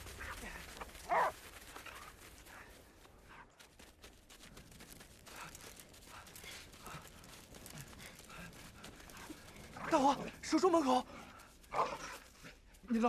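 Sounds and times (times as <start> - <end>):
footsteps through dry brush: 0.0 - 13.0.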